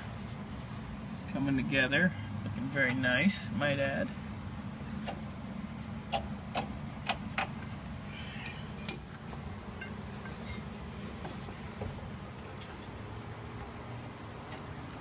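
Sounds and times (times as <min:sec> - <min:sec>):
steady low hum: 0:00.0 - 0:15.0
metal bolts clinking: 0:08.4 - 0:10.0.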